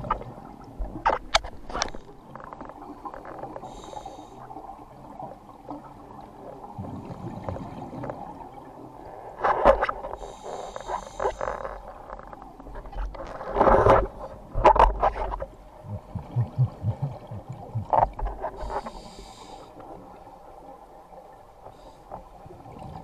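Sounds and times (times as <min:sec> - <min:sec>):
dull underwater rumble: 0:00.0 - 0:23.0
regulator inhalation hiss: 0:10.2 - 0:11.4, 0:18.7 - 0:19.7
exhaled air bubbling: 0:15.6 - 0:19.5.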